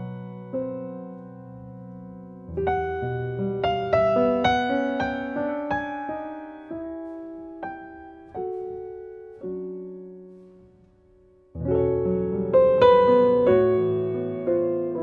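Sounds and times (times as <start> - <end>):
piano chords: 0.0 - 15.0.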